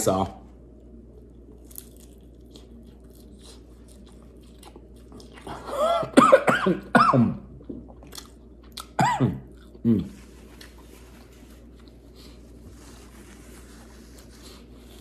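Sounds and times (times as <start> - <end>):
person chewing food: 0.6 - 6.2, 7.5 - 13.0.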